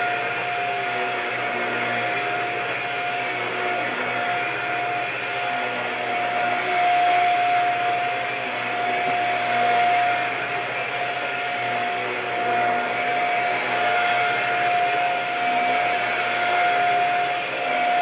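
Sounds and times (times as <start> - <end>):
stick vacuum running over rug: 0.0 - 18.0.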